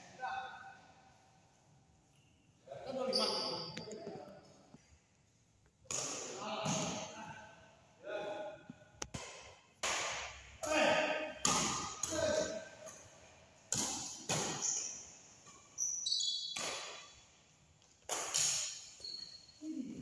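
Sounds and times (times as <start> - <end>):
rackets hitting a shuttlecock: 5.8 - 7.0, 9.0 - 15.7, 16.4 - 19.0.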